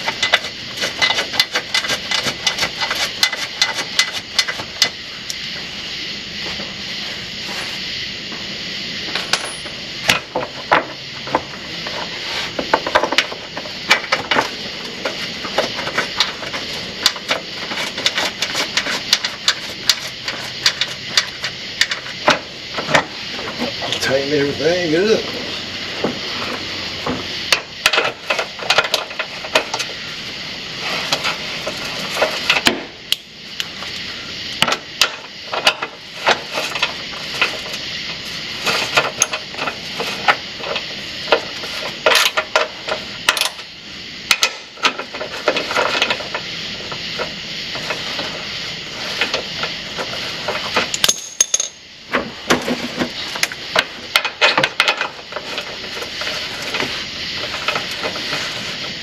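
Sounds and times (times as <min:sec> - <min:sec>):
steady background hiss: 0:00.0 - 0:59.0
metal hand tools clinking: 0:50.9 - 0:51.8.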